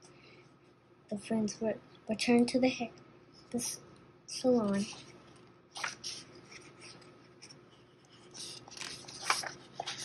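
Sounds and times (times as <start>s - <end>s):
paper page rustling: 4.6s - 10.0s.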